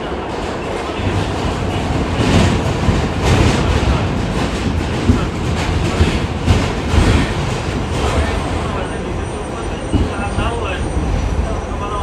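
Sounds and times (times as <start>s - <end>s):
subway car rumbling: 0.0s - 12.0s
wheels clacking over rail joints: 0.7s - 9.0s.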